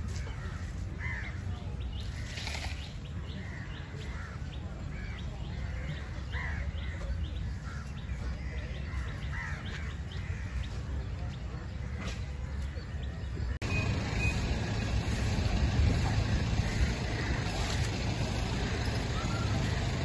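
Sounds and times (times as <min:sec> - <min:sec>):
crows cawing: 0:00.3 - 0:01.4
steady low rumble: 0:13.5 - 0:20.0.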